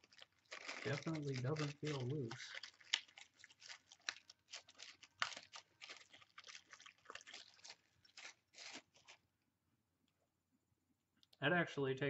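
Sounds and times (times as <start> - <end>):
plastic packaging crinkling: 0.0 - 9.3.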